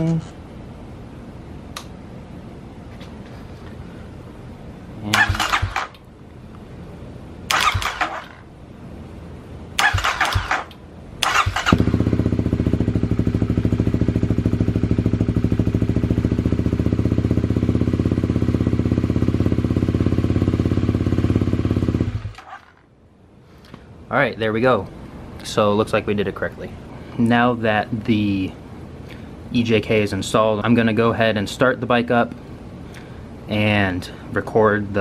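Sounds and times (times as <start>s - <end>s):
motorcycle engine idling: 5.2s - 5.9s, 9.8s - 22.6s
electric starter cranking: 5.2s - 6.0s, 7.5s - 8.4s, 9.8s - 11.9s.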